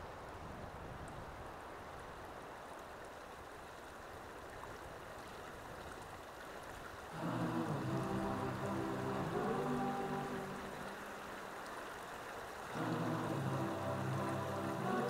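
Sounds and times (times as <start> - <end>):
stream rushing over rocks: 0.0 - 15.0
music: 7.1 - 11.3, 12.7 - 15.0.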